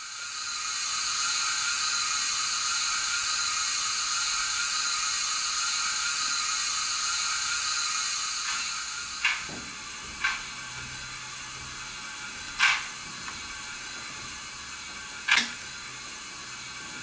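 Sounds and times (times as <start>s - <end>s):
sharp hissing and clanking: 5.6s - 17.0s.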